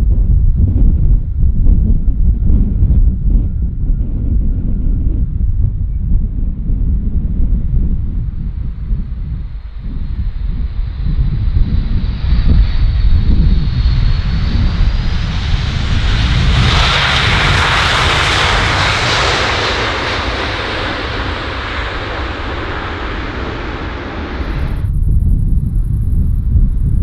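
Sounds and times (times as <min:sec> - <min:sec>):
wind rumble on microphone: 0:00.0 - 0:27.0
jet airliner passing: 0:02.1 - 0:27.0.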